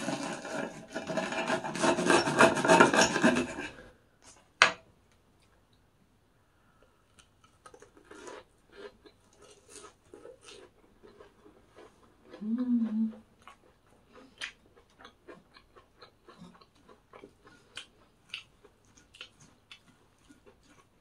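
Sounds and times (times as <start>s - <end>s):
knife sawing through crisp crust: 0.0s - 3.8s.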